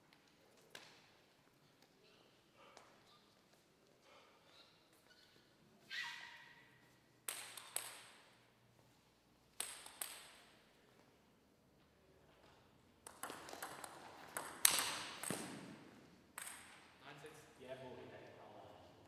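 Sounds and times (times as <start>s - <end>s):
bats striking table tennis ball: 7.3s - 8.4s, 9.6s - 10.6s, 13.0s - 15.8s, 16.4s - 16.9s
ball bouncing on table: 13.0s - 16.9s.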